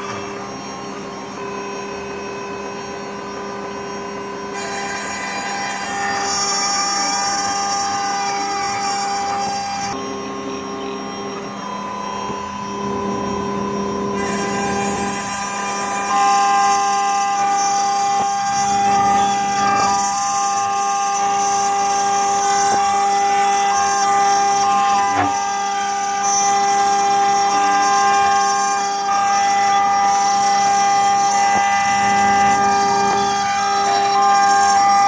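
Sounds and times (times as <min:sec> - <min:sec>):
end mill cutting wood: 0:00.0 - 0:02.0, 0:04.4 - 0:35.0
router spindle whining: 0:00.0 - 0:35.0.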